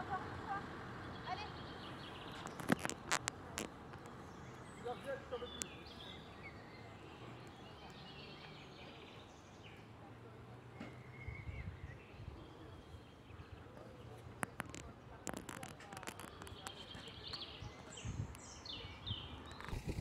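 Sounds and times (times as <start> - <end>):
birds chirping: 0.0 - 10.0, 10.7 - 20.0.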